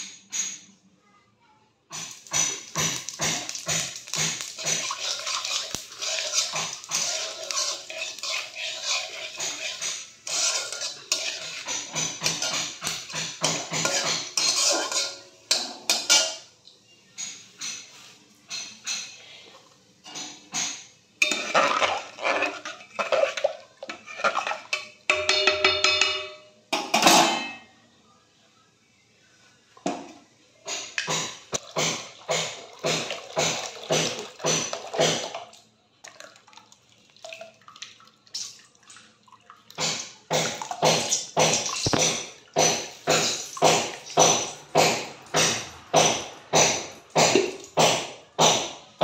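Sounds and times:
liquid pouring and splashing: 2.0 - 14.2, 31.6 - 44.8
sharp knocks from building work: 39.8 - 48.8.

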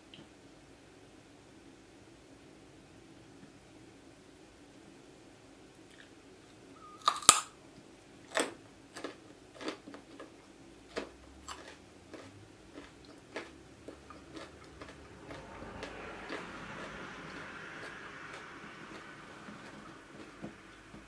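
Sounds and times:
carrot crunching: 6.9 - 7.5, 8.3 - 21.0.

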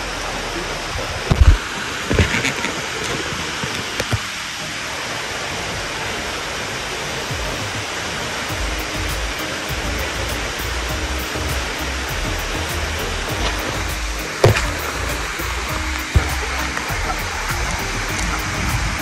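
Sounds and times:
stream rushing over rocks: 0.0 - 19.0
low thumps: 8.5 - 19.0.

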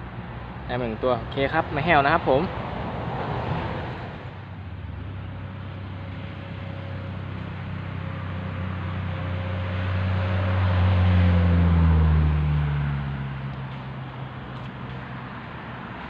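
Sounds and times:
engine passing by: 0.0 - 16.0.

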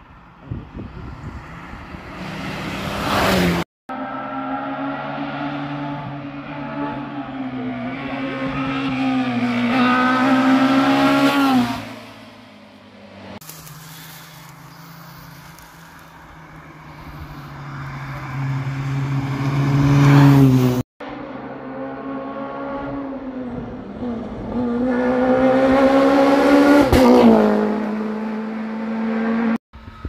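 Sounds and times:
rally car engine at high revs: 2.1 - 12.0, 16.9 - 29.6.

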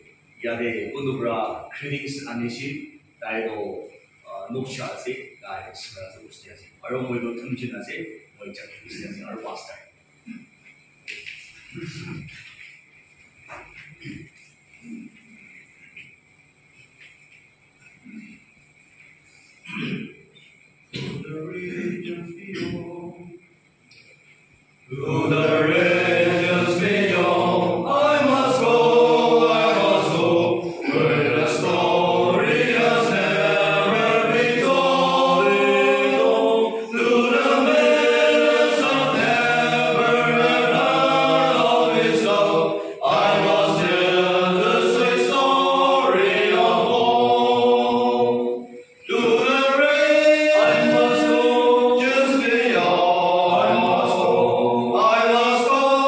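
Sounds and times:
men singing a hymn: 21.0 - 23.4, 24.9 - 56.0.

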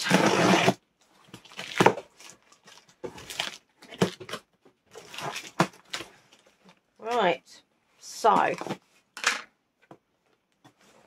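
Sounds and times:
cardboard box ripping: 0.0 - 0.8
packing material rustling: 0.0 - 7.2.

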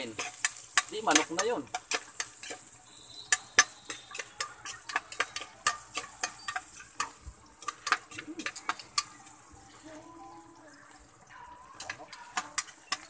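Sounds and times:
metal spatula knocking on pot: 0.0 - 2.6, 3.3 - 9.1
food sizzling in oil: 0.0 - 13.0.

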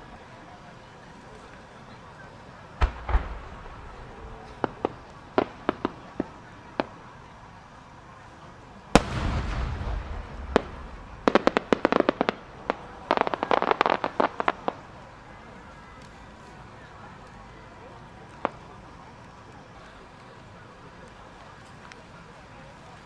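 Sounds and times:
firework crackling pops: 0.0 - 23.0
rolling echo: 0.6 - 23.0
firework boom: 2.8 - 6.2, 8.9 - 13.5
single cracks: 2.8 - 6.3.

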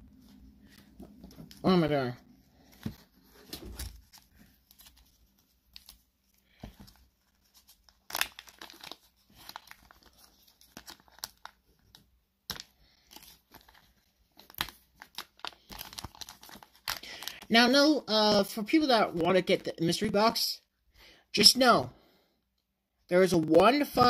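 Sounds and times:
plastic wrapping crinkling and ripping: 6.7 - 17.5.

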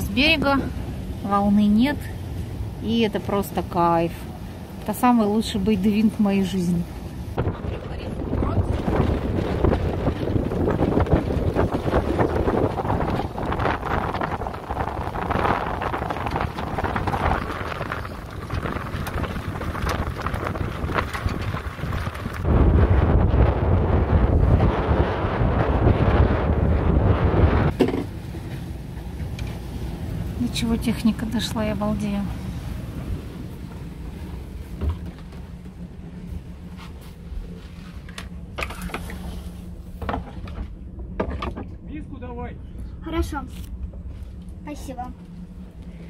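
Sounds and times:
wind buffeting microphone: 0.0 - 46.0
yacht cabin hum and rumble: 0.0 - 46.0
light irregular crackles: 7.4 - 22.6
short knocks and creaks: 34.7 - 35.8, 37.6 - 41.8.

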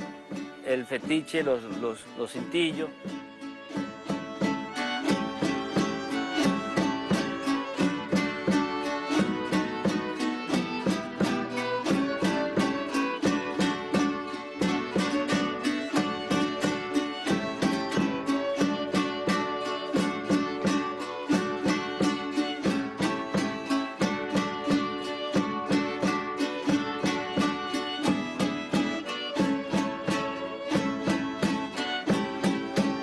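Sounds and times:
folk music on plucked strings: 0.0 - 33.0.

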